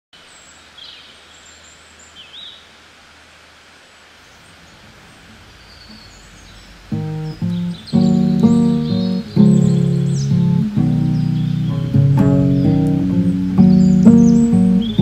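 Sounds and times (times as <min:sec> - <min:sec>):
steady outdoor hiss: 0:00.1 - 0:15.0
high bird chirps: 0:05.6 - 0:15.0.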